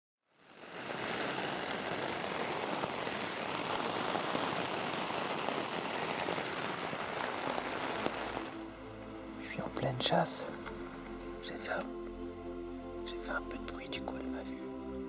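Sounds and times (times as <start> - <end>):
steady rain patter: 0.3 - 11.9.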